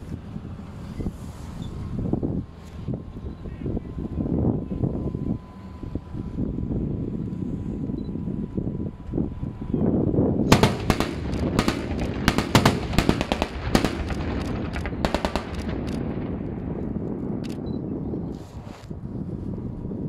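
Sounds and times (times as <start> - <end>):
vehicle engine rumble: 0.0 - 20.0
automatic gunfire bursts: 10.5 - 16.0.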